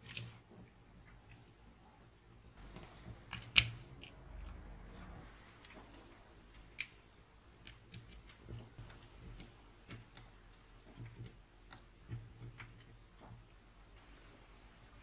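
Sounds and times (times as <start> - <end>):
parts being handled: 2.6 - 13.6.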